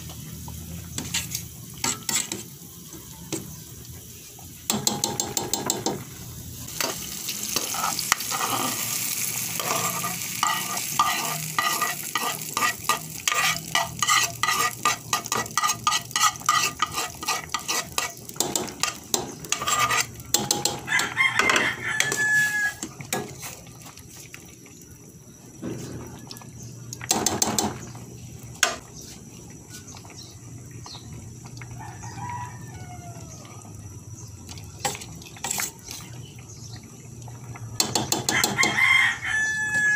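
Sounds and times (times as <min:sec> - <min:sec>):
metal ladle scraping pot: 0:00.9 - 0:02.4, 0:06.8 - 0:23.6.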